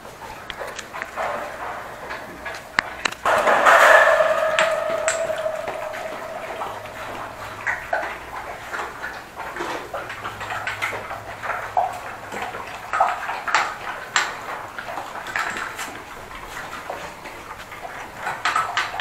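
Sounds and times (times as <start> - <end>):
dogs slurping and crunching: 0.0 - 3.3, 7.7 - 19.0
metal bowls clinking: 1.1 - 8.8.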